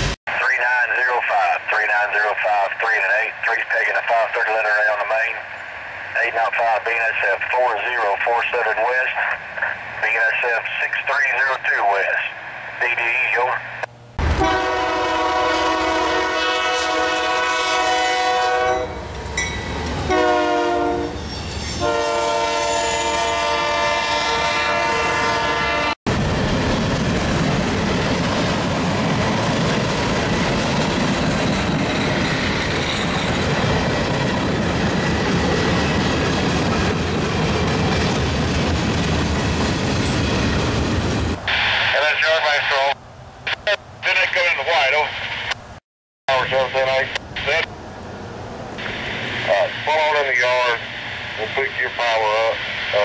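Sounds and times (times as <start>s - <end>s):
locomotive air horn blasts: 14.3s - 19.0s, 20.1s - 21.2s, 21.8s - 26.0s.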